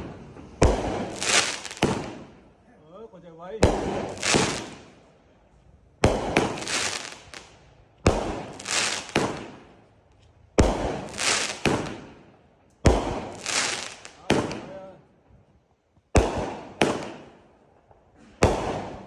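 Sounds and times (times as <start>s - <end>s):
firework shell crackling hiss: 0.0s - 2.3s, 4.0s - 5.0s, 6.1s - 9.7s, 10.7s - 12.0s, 12.8s - 14.3s.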